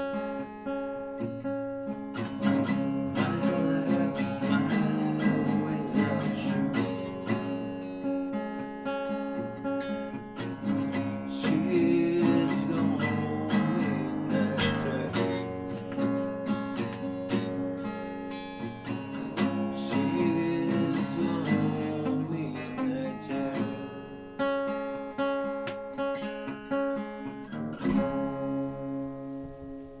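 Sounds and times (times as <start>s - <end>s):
acoustic guitar playing: 0.0s - 30.0s.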